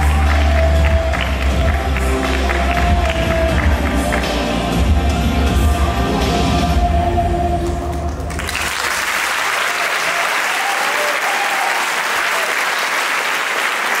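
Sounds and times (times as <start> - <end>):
audience applause: 0.0 - 4.6, 8.1 - 14.0
dance music: 0.0 - 8.5.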